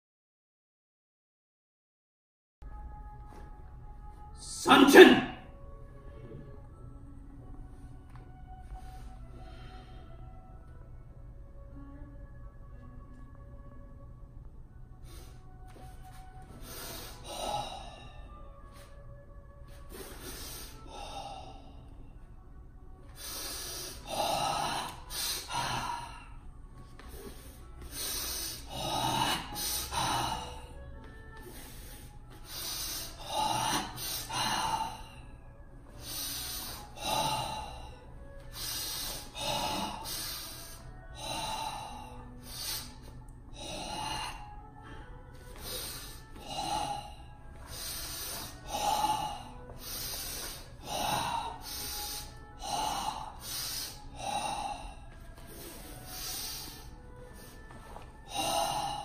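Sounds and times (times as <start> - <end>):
loud hissing breaths: 16.5 - 18.2, 19.7 - 21.8, 23.1 - 26.4, 27.0 - 30.7, 31.4 - 35.3, 36.0 - 57.7.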